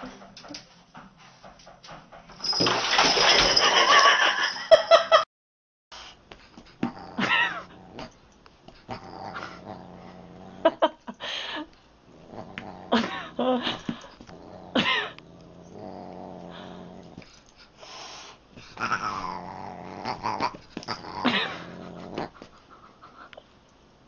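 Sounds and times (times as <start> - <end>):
animals growling: 8.9 - 10.9, 12.1 - 17.3, 18.6 - 22.5.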